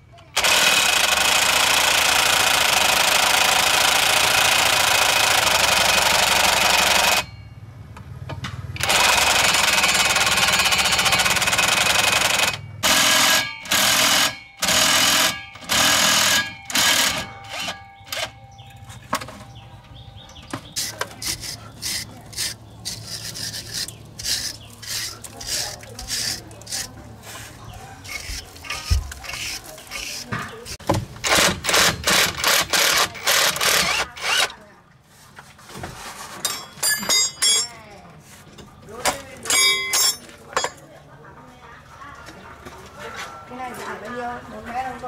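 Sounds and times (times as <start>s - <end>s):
impact wrench hammering: 8.7s - 19.6s, 28.3s - 34.5s, 36.5s - 37.8s, 39.5s - 40.8s.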